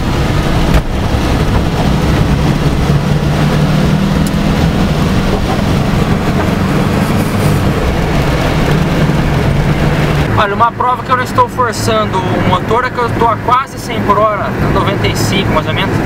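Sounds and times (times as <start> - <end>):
tyre noise on wet road: 0.0 - 13.1
car engine droning: 0.0 - 16.0.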